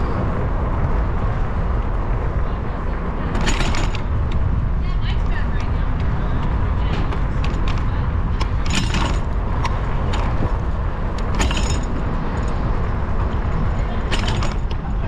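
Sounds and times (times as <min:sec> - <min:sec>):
wind and road rumble: 0:00.0 - 0:15.0
bicycle basket rattling: 0:03.0 - 0:15.0.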